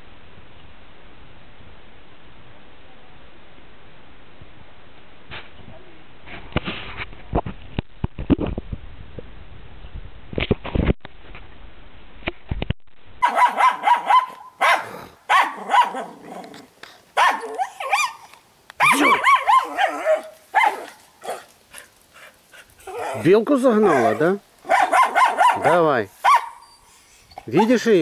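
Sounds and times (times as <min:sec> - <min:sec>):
dog barking: 0:13.2 - 0:16.2, 0:17.2 - 0:18.2, 0:18.8 - 0:21.5, 0:22.9 - 0:26.6.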